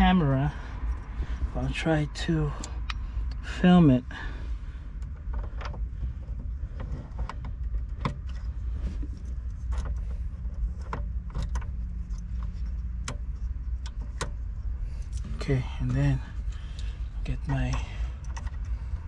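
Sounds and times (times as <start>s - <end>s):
low steady rumble: 0.0s - 19.0s
light clicks and rattles of lock: 10.8s - 12.3s.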